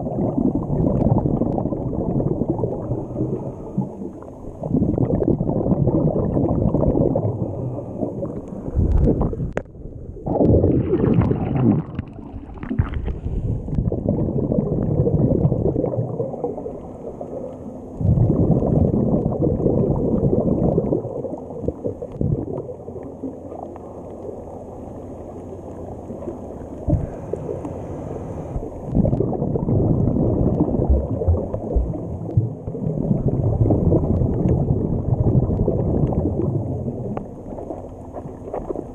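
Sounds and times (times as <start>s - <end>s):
exhaled bubbles rumbling: 0.0s - 38.9s
scuba regulator breathing: 2.8s - 4.3s, 7.4s - 9.6s, 13.0s - 13.8s, 26.9s - 28.8s.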